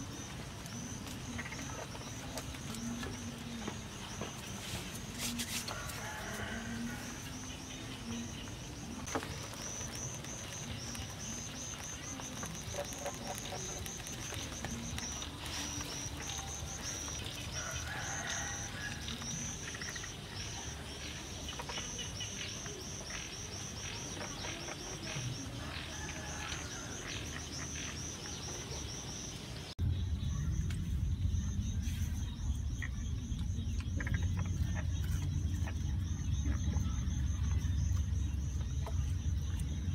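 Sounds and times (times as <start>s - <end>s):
insects chirping trill: 0.0s - 39.9s
small clicks and crackles: 9.0s - 19.6s.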